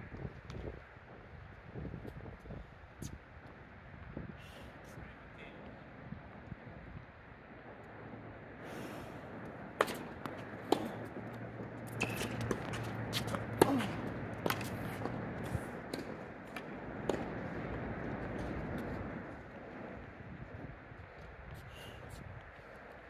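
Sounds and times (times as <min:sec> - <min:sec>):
tennis ball bouncing: 0:09.4 - 0:19.2
rackets striking tennis ball: 0:09.7 - 0:19.0.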